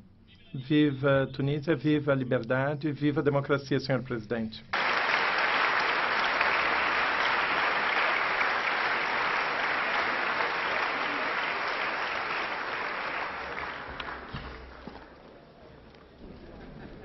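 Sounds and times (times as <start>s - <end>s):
audience applauding: 4.7s - 15.2s.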